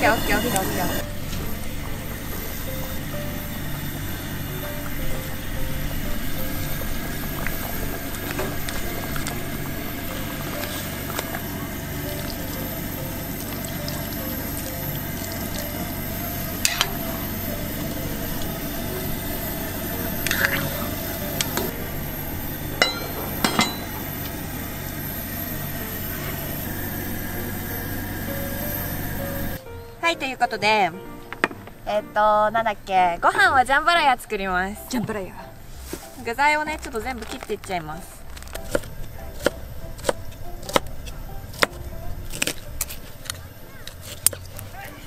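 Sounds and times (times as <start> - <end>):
pot simmering: 0.0 - 29.6
camp stove burning: 0.0 - 45.0
metal ladle and lid clinking on pot: 22.8 - 24.0.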